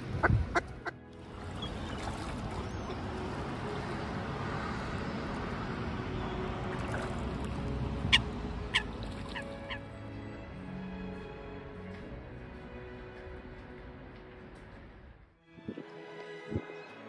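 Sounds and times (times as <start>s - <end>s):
waterfowl on a lake: 0.0s - 9.9s
background noise wash: 0.0s - 10.3s
faint music: 0.0s - 17.0s.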